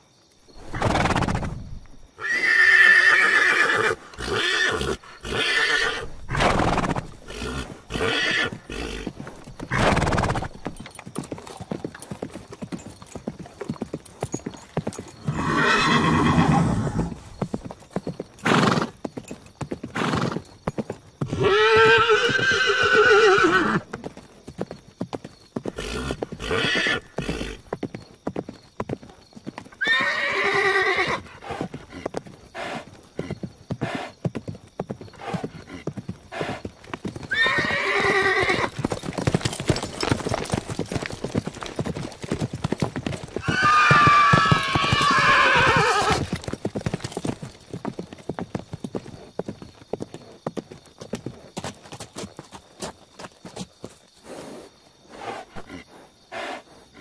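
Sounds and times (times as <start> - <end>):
horses neighing: 0.6 - 12.0, 14.4 - 17.6, 18.4 - 19.0, 19.9 - 20.5, 21.2 - 23.9, 25.6 - 27.8, 29.7 - 34.2, 35.1 - 47.4
rapid clip-clop of hoofbeats: 3.2 - 55.7.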